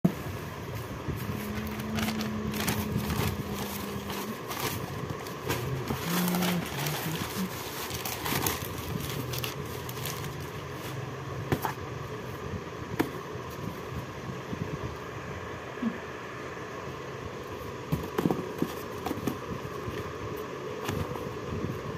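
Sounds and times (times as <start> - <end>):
newspaper rustling and crinkling: 0.8 - 11.0.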